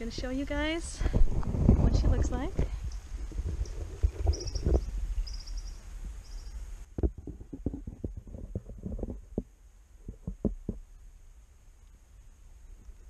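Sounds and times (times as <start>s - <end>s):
knocks and scrapes against wood: 7.0s - 10.8s.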